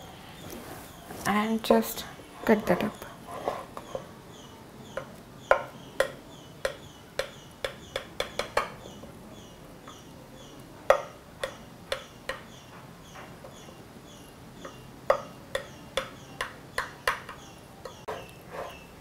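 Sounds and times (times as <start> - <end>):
knife tapping on glass dish: 5.0 - 8.8, 10.9 - 12.6, 14.6 - 18.3.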